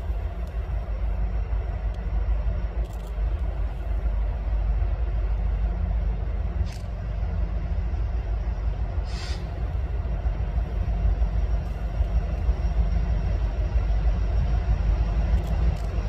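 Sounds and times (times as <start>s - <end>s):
diesel locomotives rumbling: 0.0s - 16.0s
short hiss: 9.0s - 9.5s.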